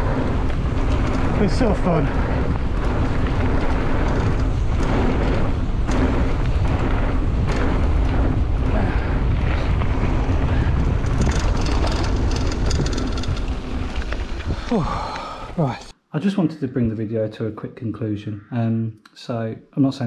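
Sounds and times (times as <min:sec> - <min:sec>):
bike rattling clicks: 0:00.0 - 0:15.3
tyres crunching on gravel: 0:00.0 - 0:15.7
deep rumble: 0:00.0 - 0:15.9
wind buffeting microphone: 0:00.0 - 0:15.9.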